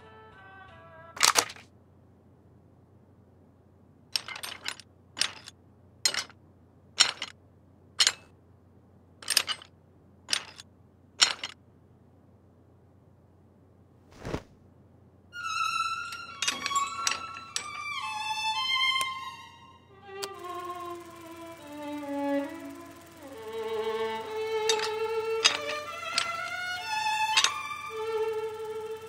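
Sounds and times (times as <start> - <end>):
slide projector clicks: 20.2 - 28.0.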